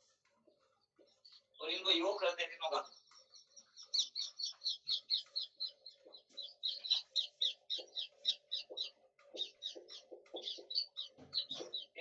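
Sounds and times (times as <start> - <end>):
marker squeaking on whiteboard: 2.8 - 12.0.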